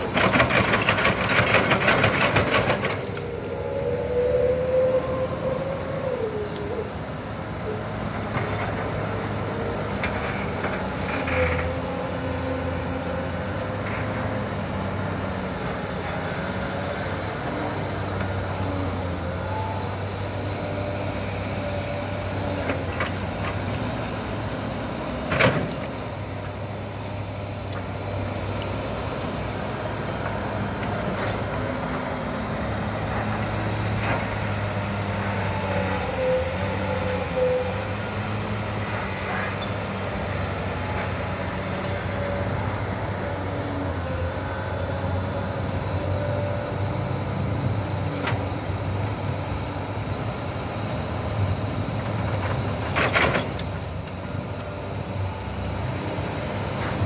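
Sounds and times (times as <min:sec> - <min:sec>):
excavator diesel engine: 0:00.0 - 0:57.0
wavering higher whine: 0:03.2 - 0:07.8.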